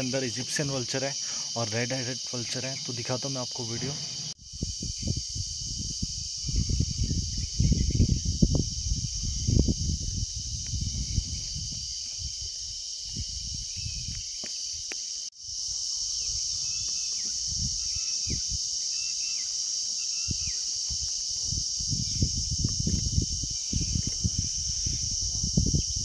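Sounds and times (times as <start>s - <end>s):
insects droning: 0.0s - 26.0s
wind rumble on microphone: 4.4s - 14.9s, 16.0s - 18.8s, 20.2s - 26.0s.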